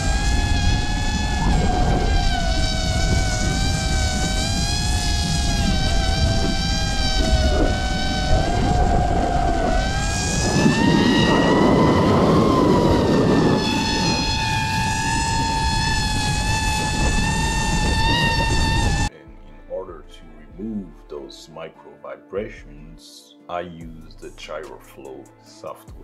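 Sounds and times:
drone propellers whining: 0.0 - 19.1
wind rushing: 0.0 - 19.1.

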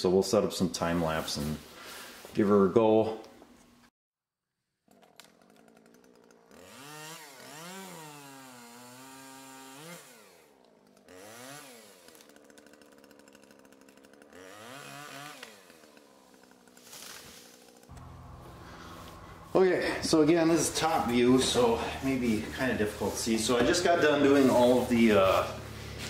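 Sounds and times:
chainsaw engine revving: 4.9 - 26.0.

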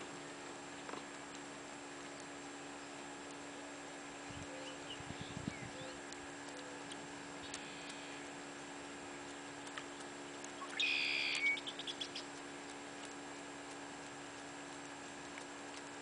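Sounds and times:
faint steady hum: 0.0 - 16.0
buzzy bird call: 10.6 - 12.3.

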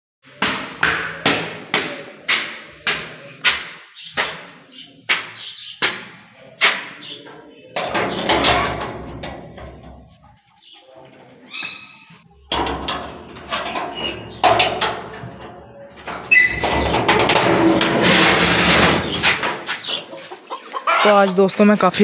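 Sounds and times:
metal door scraping open: 7.8 - 10.2, 12.5 - 20.0.

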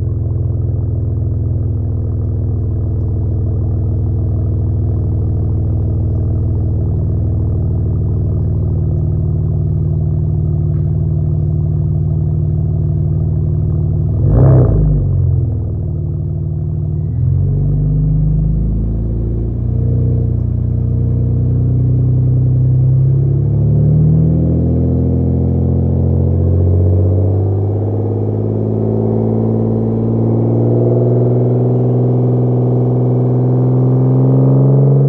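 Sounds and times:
car engine idling: 0.0 - 23.6.

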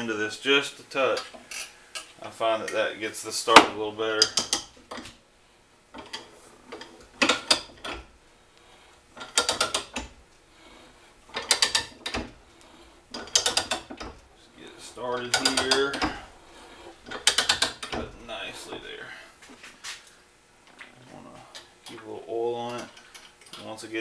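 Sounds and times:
ratchet pawl clicking: 13.1 - 14.1, 15.2 - 16.2, 17.1 - 18.0.

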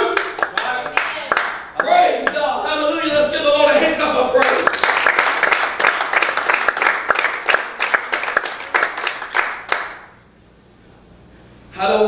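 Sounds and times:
congregation applauding: 0.0 - 2.4, 4.4 - 10.2.

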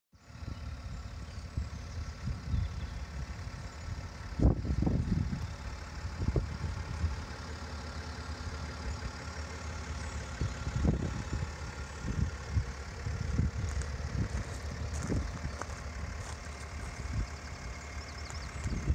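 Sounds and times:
wind buffeting microphone: 1.4 - 7.3, 10.0 - 18.9.

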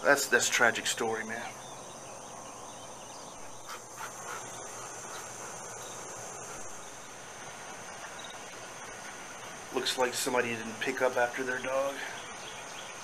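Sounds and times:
insects buzzing chorus: 0.0 - 13.0.

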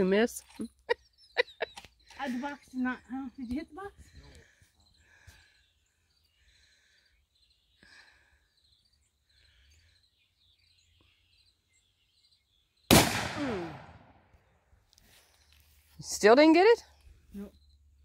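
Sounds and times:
faint bird chirps: 0.6 - 12.9, 14.4 - 18.0
rifle shot: 12.9 - 14.2.

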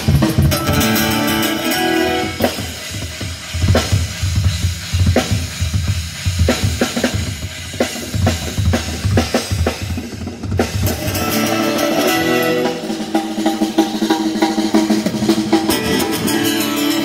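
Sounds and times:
held chord ringing: 0.5 - 2.6, 11.0 - 13.8
kick drum and snare beat: 2.9 - 11.0.

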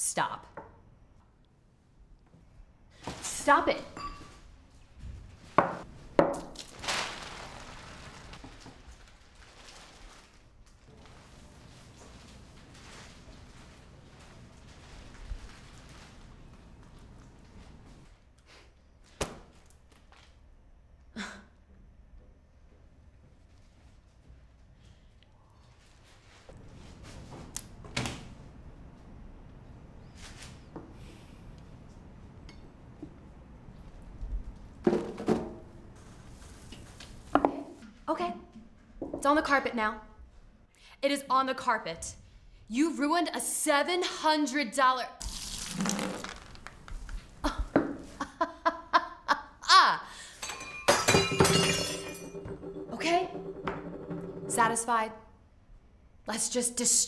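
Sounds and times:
woman laughing: 47.4 - 50.0.

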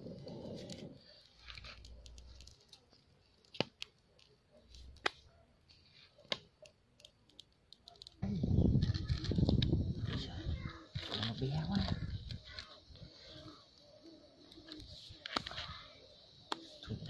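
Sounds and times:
faint ticks: 0.0 - 2.8
sharp pops of fire: 0.0 - 5.3, 14.4 - 17.0
wood fire crackling: 0.0 - 17.0.

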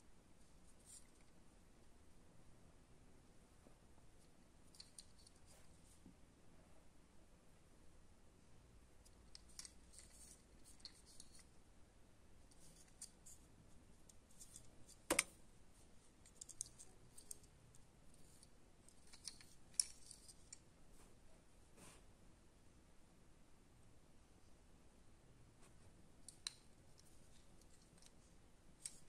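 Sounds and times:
clicks and scratches of toy handling: 0.7 - 1.4, 4.2 - 6.0, 9.0 - 11.6, 12.5 - 15.4, 16.0 - 20.6, 26.2 - 29.0.

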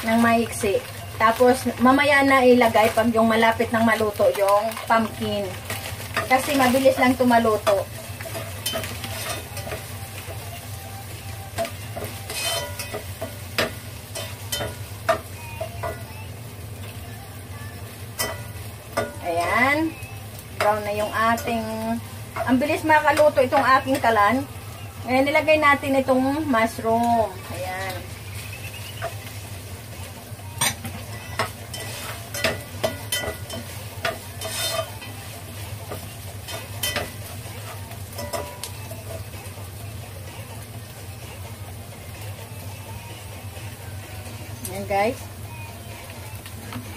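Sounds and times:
meat sizzling in a pan: 0.0 - 46.9
spatula scraping pan: 5.6 - 10.5, 11.6 - 15.2, 30.6 - 38.7
utensil scraping a pot: 12.1 - 13.0, 30.6 - 35.2.

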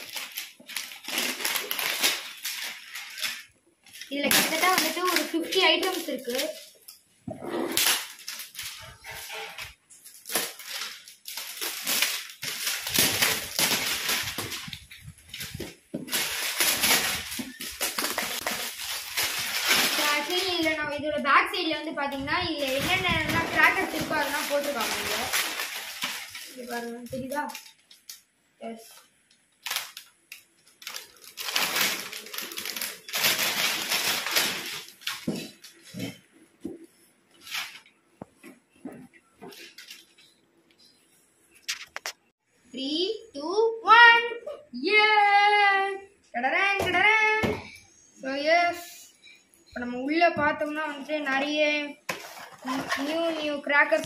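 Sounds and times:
plastic film crinkling and tearing: 0.0 - 7.0, 7.7 - 20.9, 22.1 - 28.3, 29.5 - 36.0, 52.1 - 54.0
plastic wrap crackling: 0.0 - 7.0, 7.7 - 28.3, 29.4 - 36.1, 52.0 - 54.0.

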